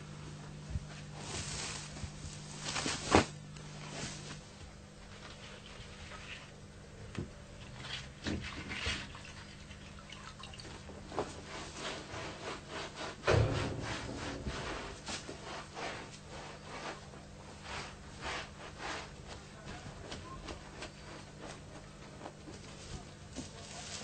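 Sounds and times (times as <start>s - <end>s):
thump: 13.2s - 15.6s
hands scrubbing sheepskin: 14.8s - 22.8s.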